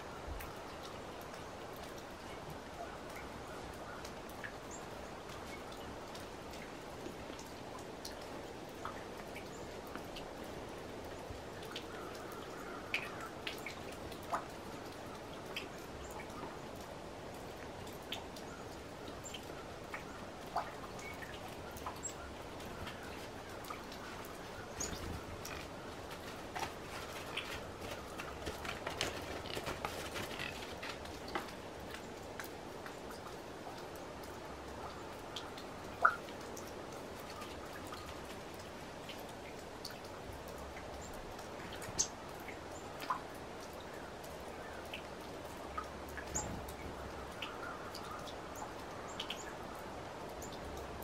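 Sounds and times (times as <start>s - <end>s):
faint steady hiss: 0.0s - 51.0s
light ticks: 0.4s - 49.6s.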